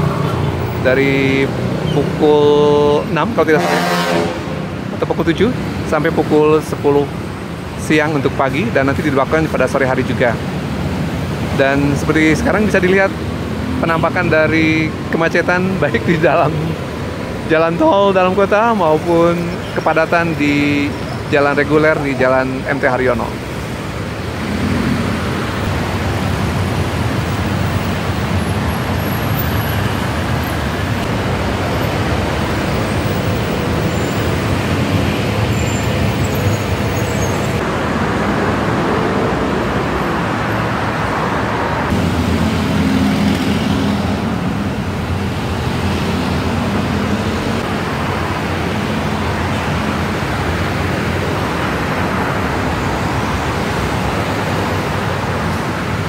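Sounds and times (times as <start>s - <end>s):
heavy road traffic: 0.0s - 56.0s
heavier engine hum: 23.1s - 56.0s.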